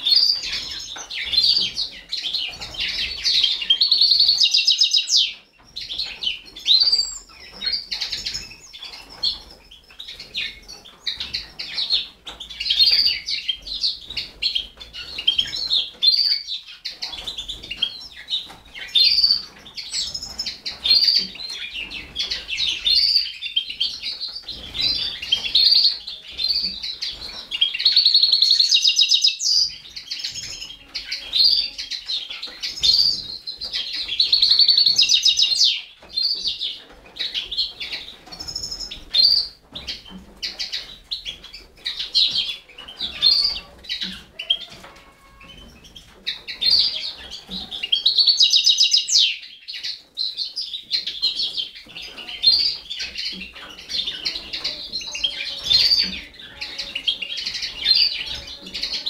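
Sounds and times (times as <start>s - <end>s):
nestlings begging chirps: 0.0s - 14.3s, 17.0s - 36.6s, 41.9s - 59.0s.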